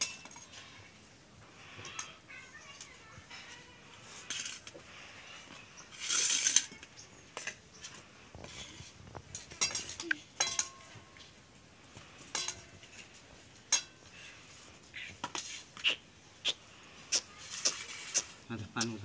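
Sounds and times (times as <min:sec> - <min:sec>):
metal plates clinking and scraping: 0:00.0 - 0:00.9, 0:03.2 - 0:11.4, 0:12.0 - 0:14.4.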